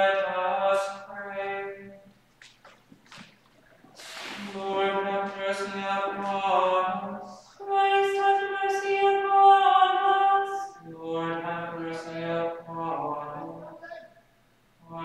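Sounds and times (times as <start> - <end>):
higher voice chanting: 4.0 - 14.2
lower voice chanting: 4.3 - 14.2.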